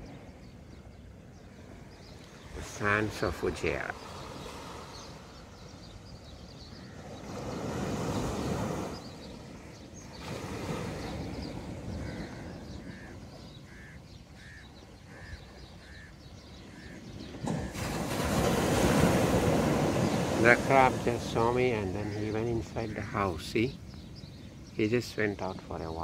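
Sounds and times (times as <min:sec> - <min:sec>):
bird calling: 0:00.0 - 0:26.0
surf washing onto shore: 0:02.2 - 0:05.7, 0:06.9 - 0:13.9, 0:17.2 - 0:23.6.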